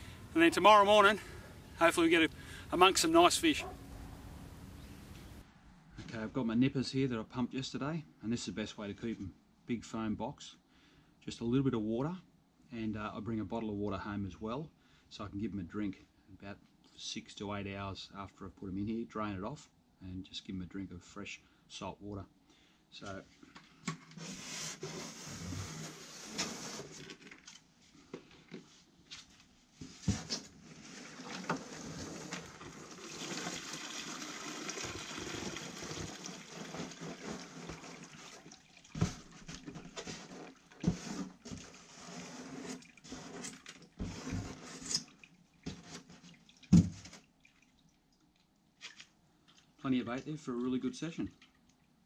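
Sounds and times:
water pouring into a bucket: 30.8 - 39.6.

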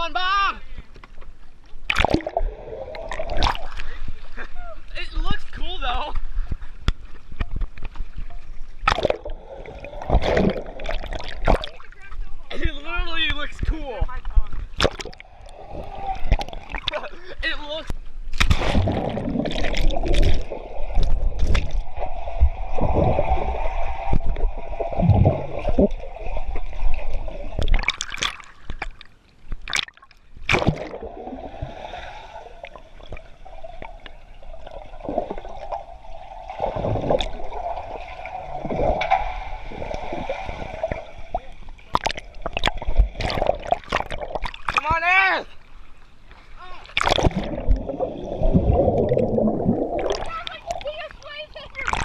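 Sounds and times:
underwater gurgling and bubbling: 1.8 - 4.4, 8.5 - 11.9, 14.6 - 17.0, 18.6 - 29.0, 29.7 - 44.8, 46.9 - 52.0.

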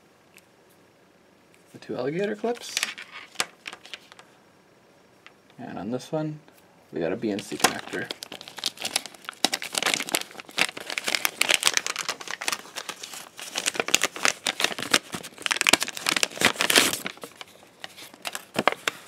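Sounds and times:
plastic bag crinkling: 2.4 - 4.2, 7.2 - 19.0.

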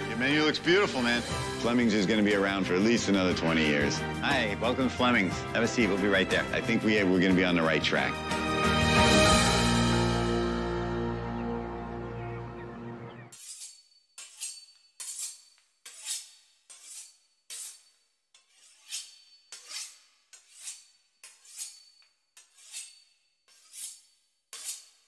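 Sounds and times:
music: 0.0 - 13.3
knife sawing through pastry crust: 13.3 - 25.0.

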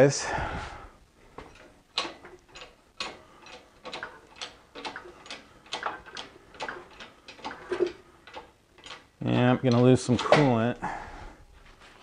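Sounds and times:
hoist ratchet clicking: 1.5 - 10.6.

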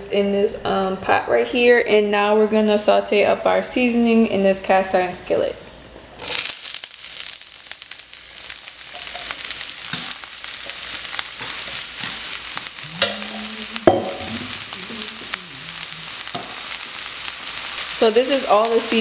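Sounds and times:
vegetables sizzling in hot oil: 6.2 - 19.0
sharp knock: 13.9 - 14.5.

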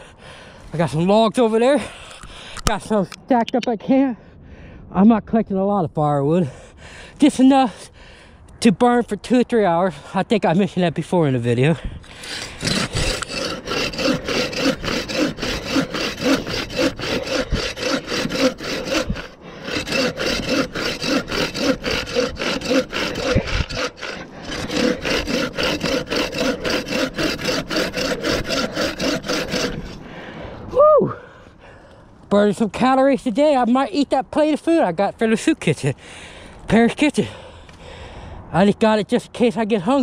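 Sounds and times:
hand saw cutting wood: 12.0 - 30.0.

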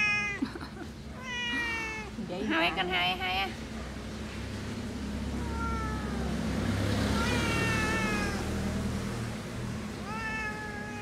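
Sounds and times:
cat meowing: 0.0 - 0.4, 1.1 - 2.2, 5.3 - 8.8, 10.0 - 11.0.

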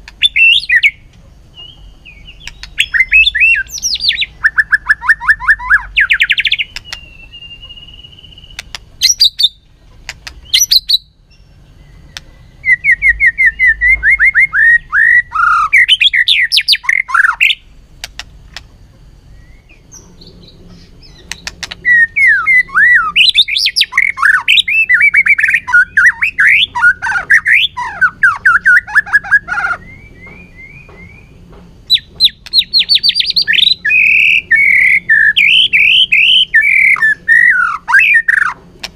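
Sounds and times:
bird sharp clicking notes: 0.0 - 4.1, 6.1 - 7.8, 8.4 - 11.0, 16.4 - 18.7, 21.1 - 21.8
bird singing whistled phrases: 0.2 - 1.0, 1.6 - 9.6, 10.4 - 17.6, 19.3 - 31.3, 31.9 - 38.6.

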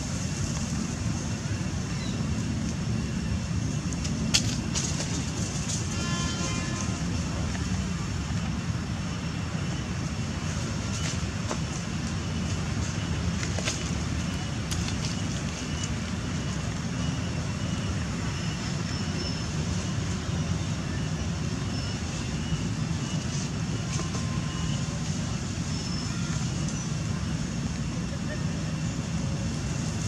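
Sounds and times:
distant road traffic rumble: 0.0 - 30.0.

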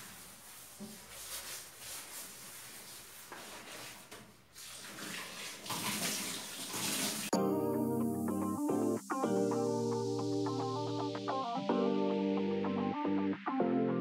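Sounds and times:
background music: 7.4 - 14.0.

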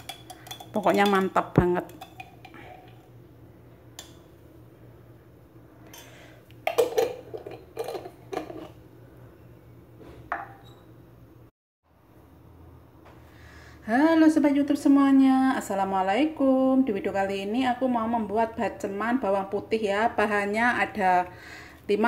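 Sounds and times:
metal spoon scraping glass jar: 7.4 - 8.8.

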